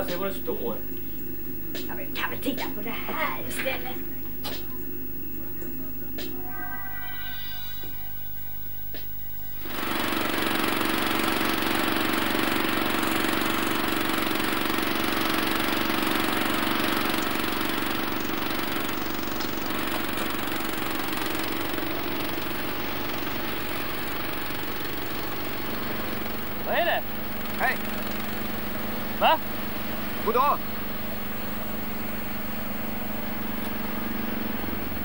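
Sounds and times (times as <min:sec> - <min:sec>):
digger engine running: 0:09.6 - 0:35.0.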